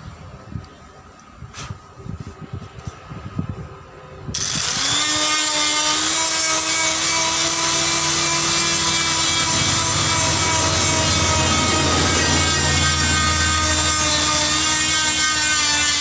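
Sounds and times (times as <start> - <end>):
electric grinder buffing rubber: 4.4 - 16.0.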